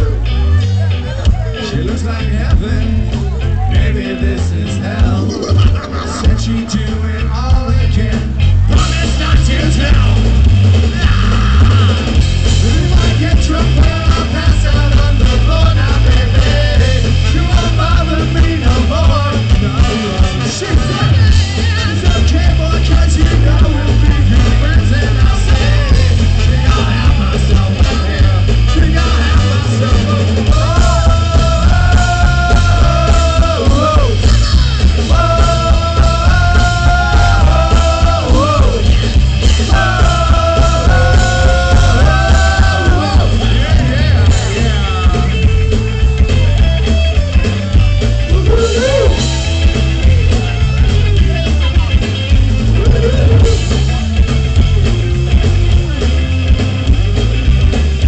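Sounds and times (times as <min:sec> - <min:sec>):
live band playing loudly: 0:00.0 - 0:58.0
trumpet and trombone notes: 0:27.8 - 0:45.4.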